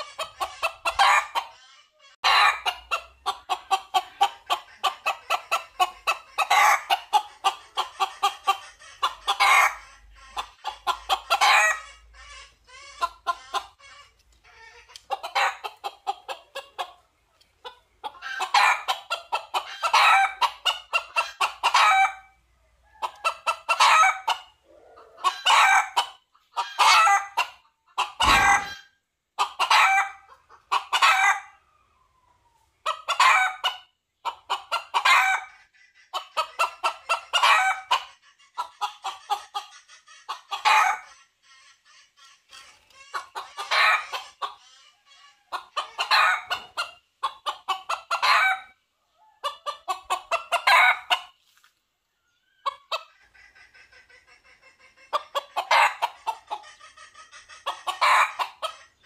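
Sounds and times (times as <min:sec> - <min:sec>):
rooster clucking: 0:00.0 - 0:51.7, 0:52.4 - 0:59.0
thump: 0:28.2 - 0:28.7.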